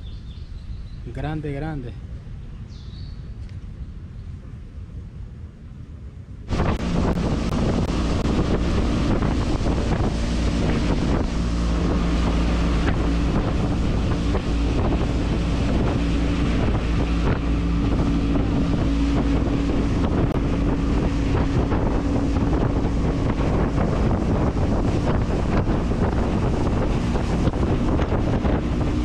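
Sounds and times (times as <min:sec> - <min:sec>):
wind buffeting microphone: 0:00.0 - 0:29.0
water rushing along hull: 0:04.4 - 0:29.0
outboard motor running: 0:06.5 - 0:29.0.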